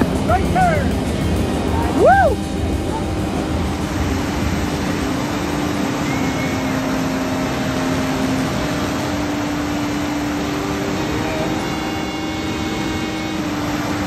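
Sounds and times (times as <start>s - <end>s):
whitewater rapid rushing: 0.0s - 14.0s.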